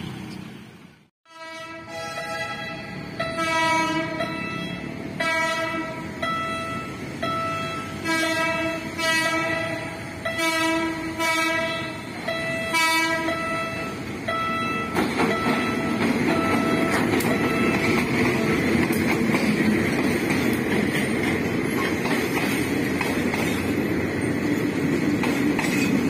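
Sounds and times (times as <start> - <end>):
locomotive engine and wheels: 0.0 - 26.0
locomotive air horn blasts: 1.3 - 6.6, 7.6 - 14.0.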